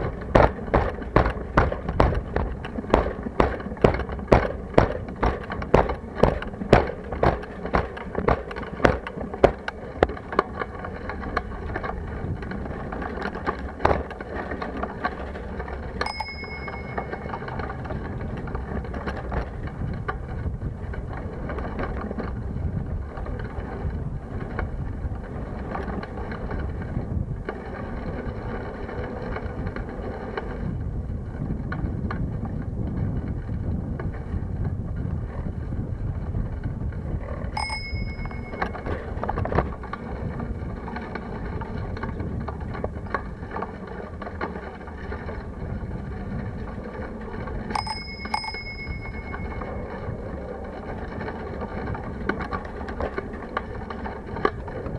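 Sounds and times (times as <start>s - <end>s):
sharp rattling knocks: 0.0s - 10.2s
tyre and wind rumble: 0.0s - 54.9s
bicycle bell ding: 16.0s - 17.6s, 37.6s - 39.0s, 47.7s - 50.0s.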